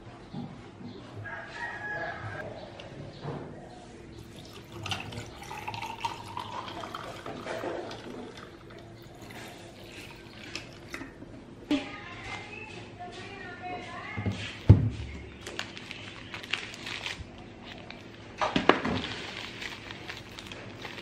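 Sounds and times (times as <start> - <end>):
tea pouring into a glass: 4.2 - 10.9.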